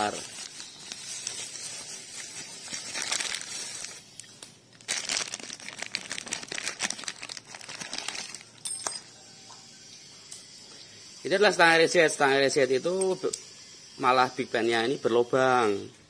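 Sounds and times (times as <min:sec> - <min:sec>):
plastic wrapping crinkling: 0:00.0 - 0:08.6.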